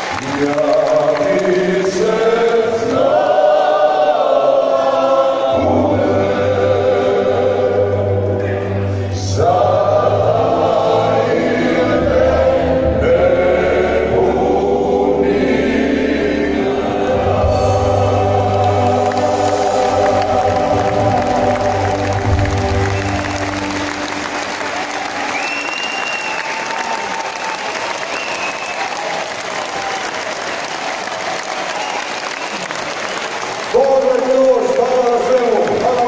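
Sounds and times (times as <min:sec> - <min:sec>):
male vocal ensemble singing harmony: 0:00.1 - 0:27.4
low bass line: 0:17.1 - 0:25.1.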